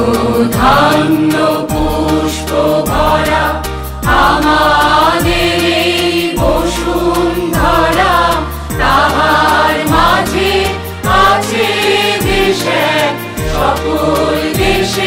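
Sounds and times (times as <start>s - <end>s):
sung melody over drone: 0.0s - 3.2s
steady ticking beat: 0.0s - 15.0s.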